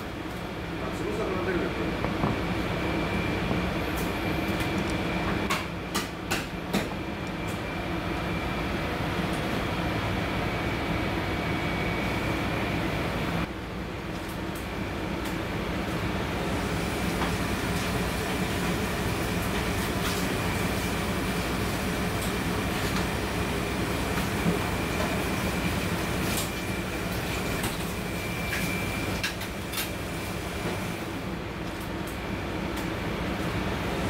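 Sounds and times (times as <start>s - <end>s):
machine rumble and hum: 0.0s - 13.6s.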